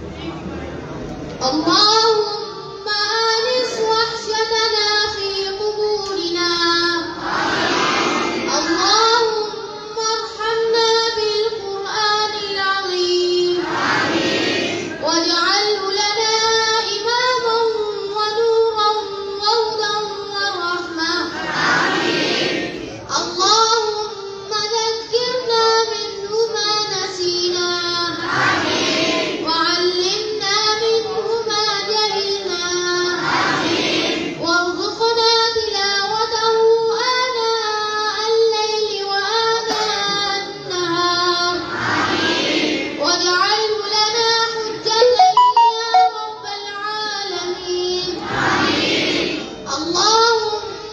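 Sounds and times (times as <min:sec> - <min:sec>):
children singing in unison: 0:07.2 - 0:08.9, 0:13.6 - 0:15.0, 0:21.3 - 0:22.8, 0:28.1 - 0:29.5, 0:33.2 - 0:34.4, 0:41.6 - 0:43.0, 0:48.1 - 0:49.5.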